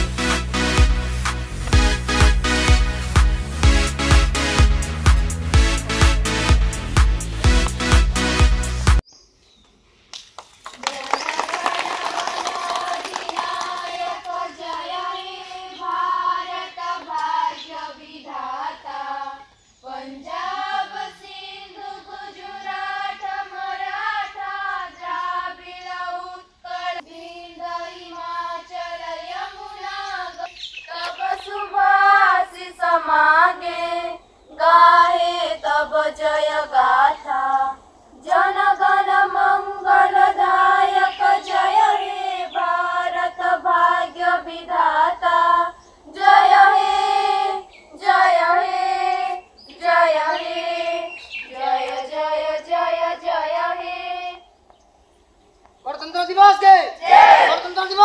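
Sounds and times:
children singing in unison: 0:12.4 - 0:54.4.

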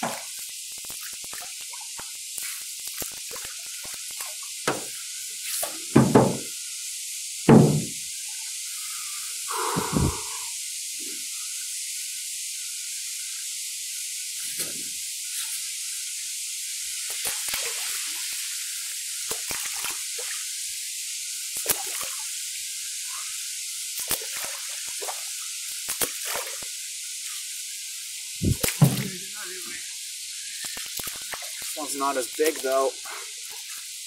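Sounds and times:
steady hiss: 0:00.0 - 0:34.0
paddle splashing water: 0:28.4 - 0:29.3.

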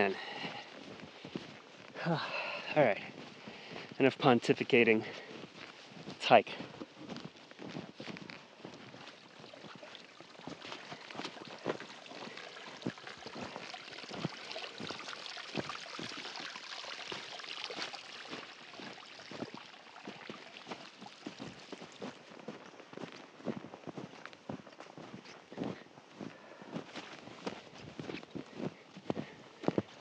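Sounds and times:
footsteps crunching in snow: 0:00.0 - 0:16.3, 0:17.1 - 0:30.0
meltwater trickling over rock: 0:07.2 - 0:22.8.

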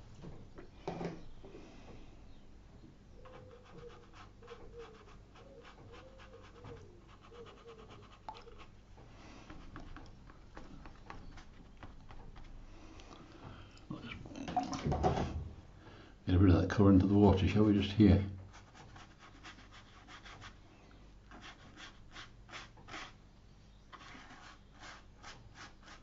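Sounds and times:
brush scrubbing paper: 0:03.2 - 0:08.8, 0:17.4 - 0:20.6, 0:21.3 - 0:23.2, 0:23.9 - 0:26.0.

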